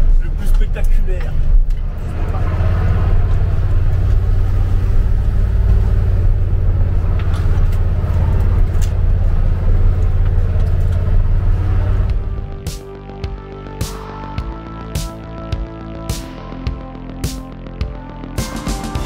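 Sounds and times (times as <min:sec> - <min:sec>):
truck engine rumbling: 0:00.0 - 0:18.2.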